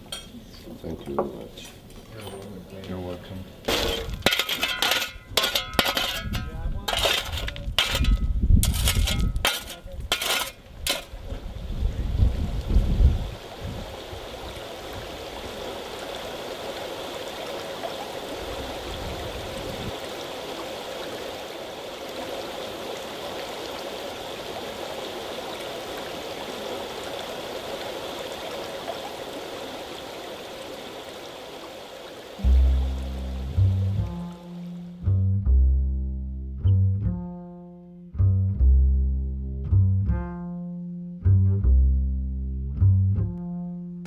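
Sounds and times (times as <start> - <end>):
river water rushing: 13.4 - 33.7
low rumble: 32.4 - 37.5.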